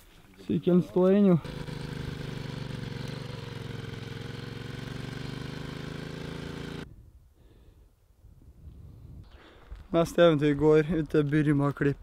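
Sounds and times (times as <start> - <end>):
motorcycle engine running: 1.4 - 6.8.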